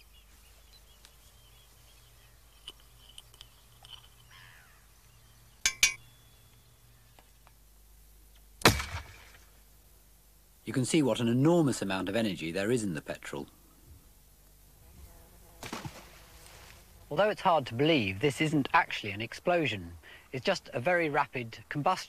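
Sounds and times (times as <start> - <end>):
birds chirping: 0.0 - 7.7
metallic clinks: 2.6 - 4.4, 5.6 - 6.0.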